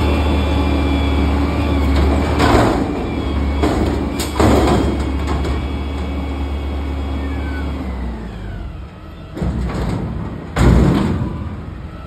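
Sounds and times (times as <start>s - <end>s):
garbage truck engine revving: 0.0s - 12.0s
metal dumpster clattering on pavement: 1.9s - 5.7s, 9.3s - 11.9s.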